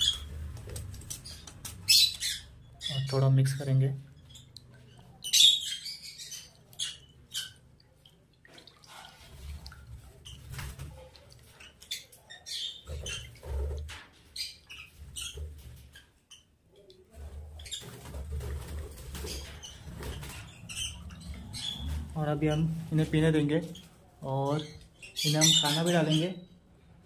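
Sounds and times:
lovebirds chirping: 0.0 - 7.6, 19.0 - 26.8.

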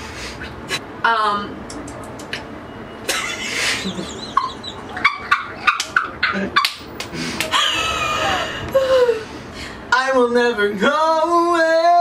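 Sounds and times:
woman laughing hard: 3.1 - 9.4.

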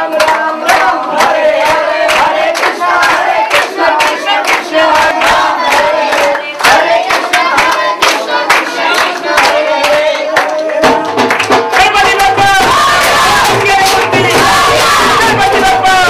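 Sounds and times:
crowd noise: 0.0 - 16.0
group devotional singing: 0.0 - 16.0
rhythmic clapping: 0.0 - 16.0.

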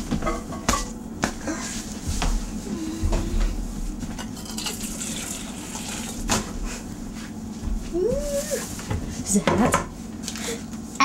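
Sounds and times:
dishes and utensils clinking: 0.1 - 1.0.

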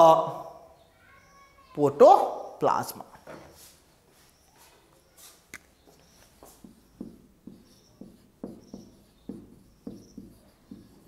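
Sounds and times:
marker squeaking on whiteboard: 3.2 - 11.0.

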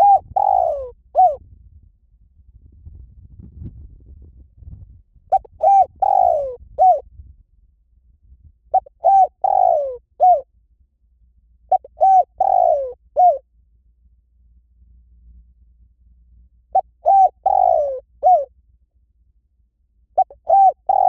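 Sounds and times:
dove cooing: 0.0 - 1.4, 5.3 - 7.0, 8.7 - 10.5, 11.7 - 13.4, 16.7 - 18.5, 20.2 - 21.0.

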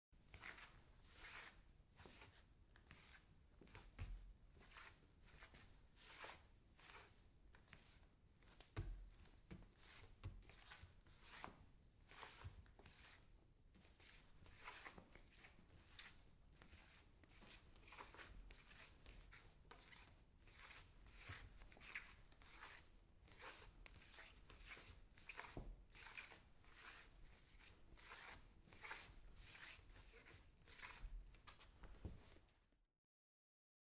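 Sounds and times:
bare feet scuffing on wooden floor: 30.1 - 32.4.

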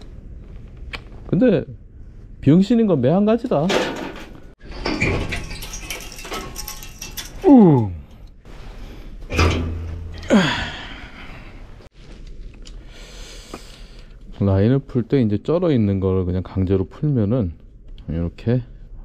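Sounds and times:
metal tools clinking and scraping: 3.6 - 8.3
man groaning: 7.4 - 8.1, 10.2 - 11.4.

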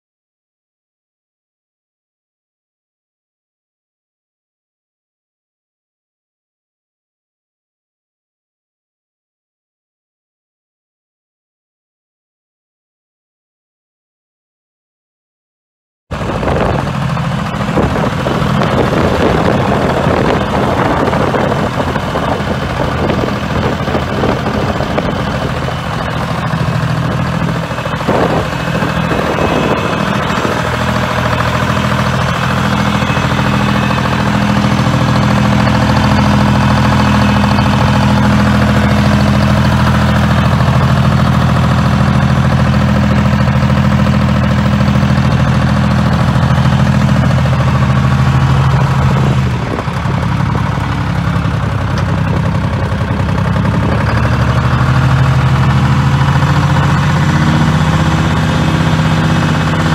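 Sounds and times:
diesel engine running: 16.1 - 59.9.

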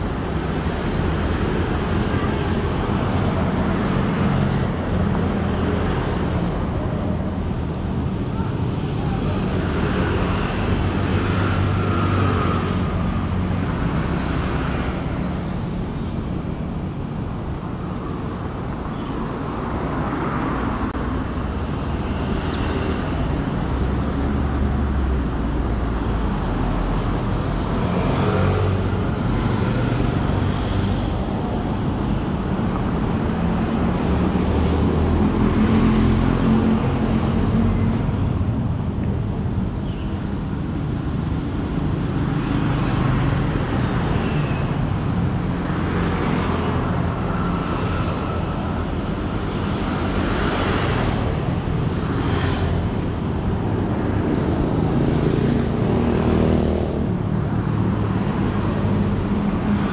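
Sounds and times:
road traffic rumble: 0.0 - 59.9.

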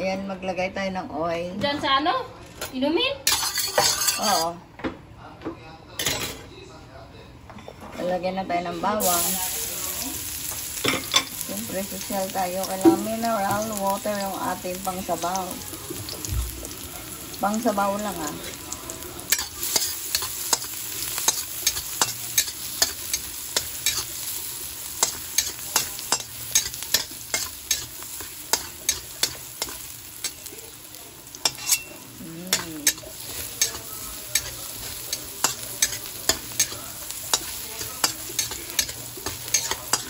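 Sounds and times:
garlic sizzling in hot oil: 9.0 - 40.0
spatula scraping and tapping wok: 19.3 - 30.6, 31.4 - 40.0.

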